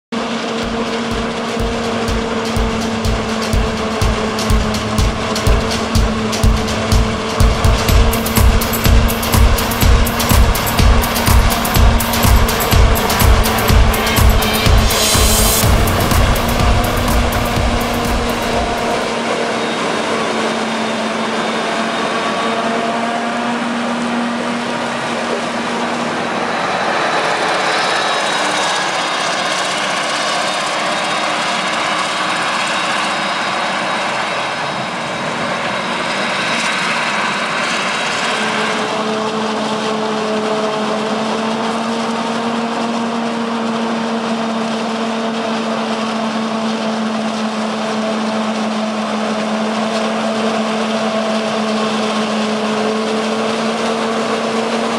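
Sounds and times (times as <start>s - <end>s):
rushing noise: 0.2s - 20.6s, 23.8s - 29.4s.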